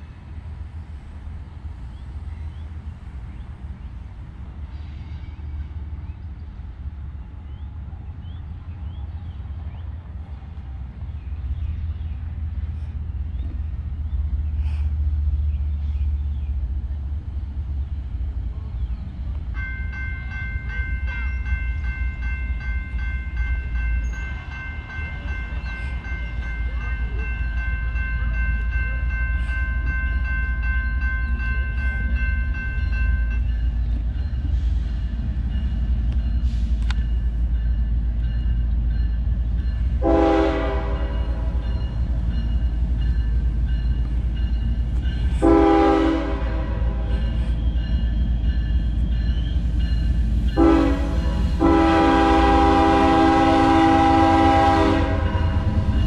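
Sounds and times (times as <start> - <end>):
train horn blast: 40.0 - 41.6, 45.4 - 47.4, 50.6 - 55.8.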